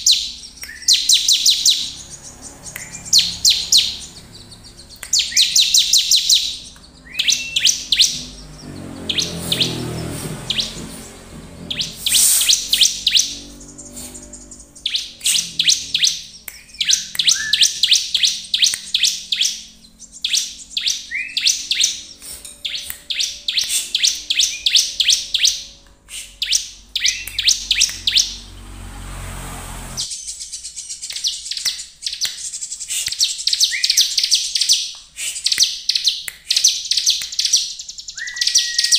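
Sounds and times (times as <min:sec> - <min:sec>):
bird chirping rapidly: 0:00.0 - 0:38.9.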